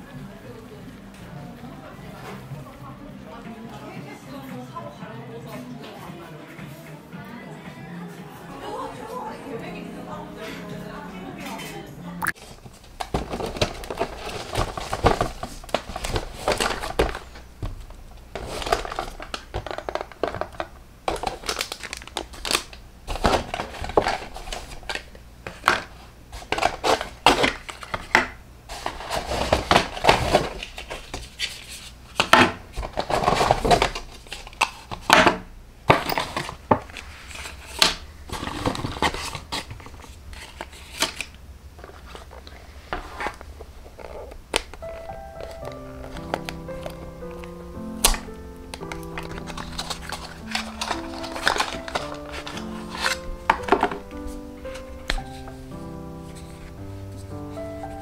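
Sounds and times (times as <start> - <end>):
paper and plastic crinkling: 11.4 - 35.3, 35.9 - 58.0.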